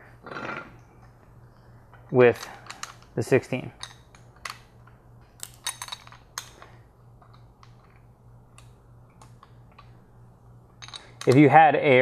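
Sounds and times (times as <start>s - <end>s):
wrench clinking on metal: 5.4s - 6.5s.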